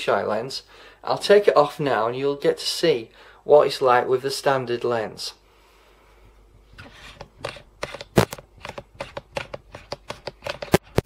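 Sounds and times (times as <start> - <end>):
lens being unscrewed clicking: 7.2 - 10.8.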